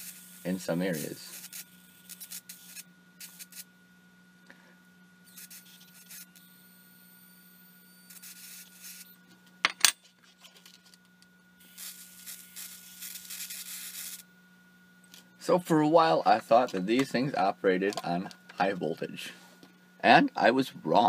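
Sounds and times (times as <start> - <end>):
hissing spark crackle: 0.0 - 3.7
faint steady hum: 0.0 - 21.0.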